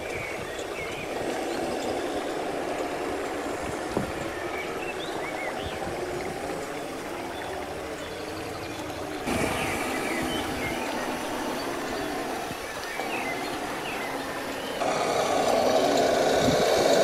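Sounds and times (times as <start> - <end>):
toy truck motor and gears: 0.0 - 17.0.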